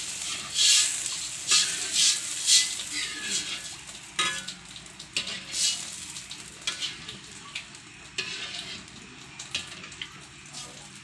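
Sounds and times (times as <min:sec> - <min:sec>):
hot broth bubbling and hissing: 0:00.0 - 0:11.0
metal ladle scraping a wok: 0:00.1 - 0:04.5, 0:05.2 - 0:06.0, 0:06.6 - 0:07.1, 0:08.2 - 0:08.9.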